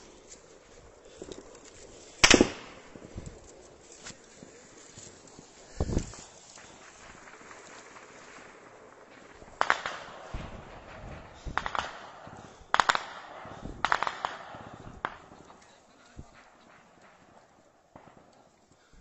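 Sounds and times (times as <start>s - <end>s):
gunshots: 2.2s - 3.2s, 6.2s - 18.4s.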